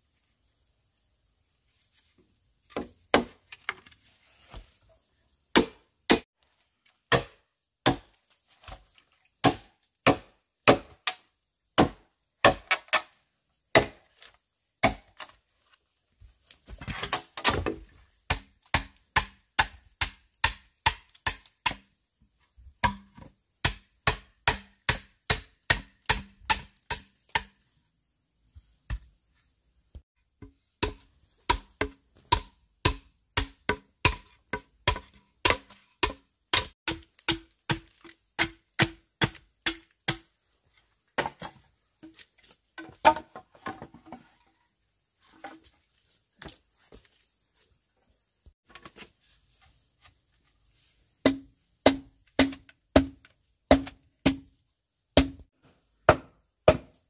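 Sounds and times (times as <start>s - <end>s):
blade chopping wood: 5.5s - 6.2s, 7.1s - 8.8s, 9.4s - 11.2s, 11.8s - 14.0s, 16.8s - 21.8s, 22.8s - 27.6s, 30.8s - 40.3s, 51.2s - 54.5s, 55.2s - 55.4s, 56.1s - 57.0s.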